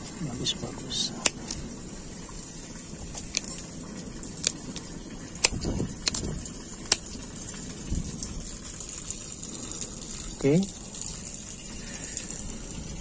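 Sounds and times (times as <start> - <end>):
rustling of roots and debris: 0.0 - 7.4.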